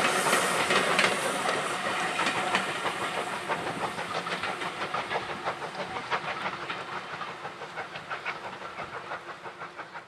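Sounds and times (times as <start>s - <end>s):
steam train wheels clattering: 0.0s - 10.0s.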